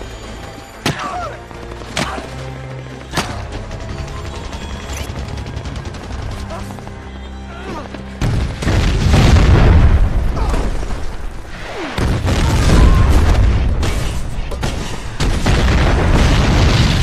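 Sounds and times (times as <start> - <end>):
explosions with heavy rumble: 8.2 - 17.0.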